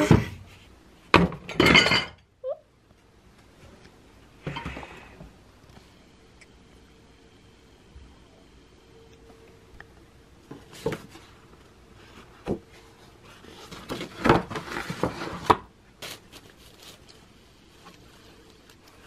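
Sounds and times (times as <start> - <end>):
paper packaging crinkling: 13.5 - 17.3.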